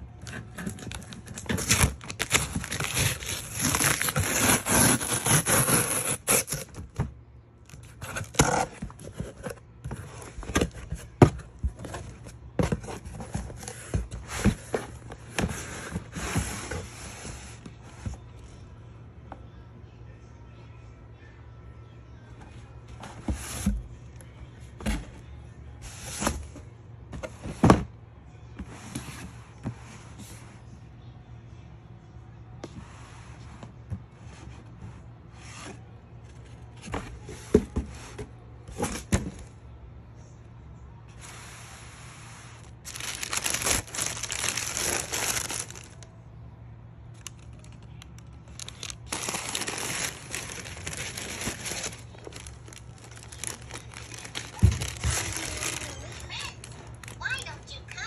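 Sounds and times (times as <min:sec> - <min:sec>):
cardboard boxes handled and opened: 0:00.1 - 0:18.4, 0:22.4 - 0:28.0, 0:32.6 - 0:39.6, 0:42.6 - 0:46.0, 0:48.6 - 0:57.2
tissue paper rustling: 0:41.2 - 0:46.0, 0:48.6 - 0:57.4.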